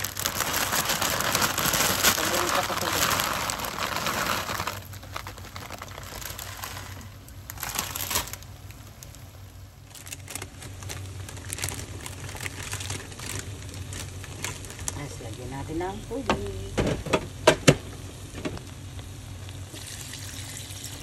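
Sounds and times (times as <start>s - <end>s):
plastic bag crinkling: 0.0s - 16.7s.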